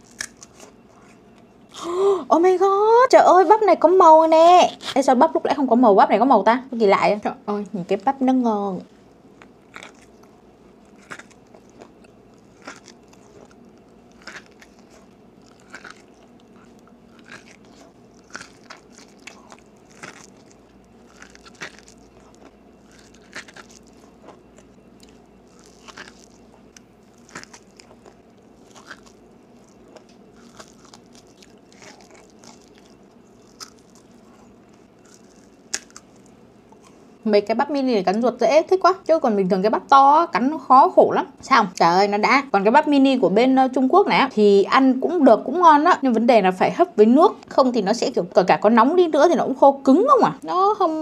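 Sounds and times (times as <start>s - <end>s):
crunchy biting and chewing: 0.0s - 1.8s, 9.1s - 37.2s.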